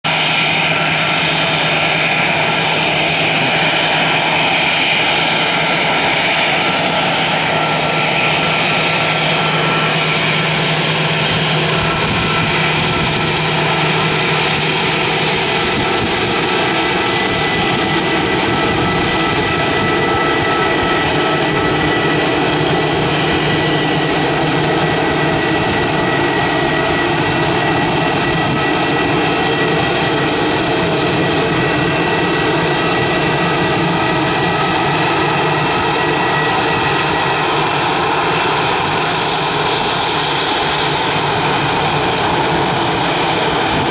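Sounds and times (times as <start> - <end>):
jet engines at taxi power: 0.0 - 43.9.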